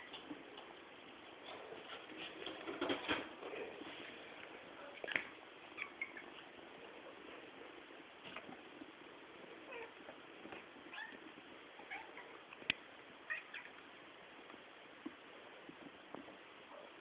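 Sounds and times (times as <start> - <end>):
cats meowing: 4.9 - 6.5, 10.8 - 12.5, 13.2 - 13.8.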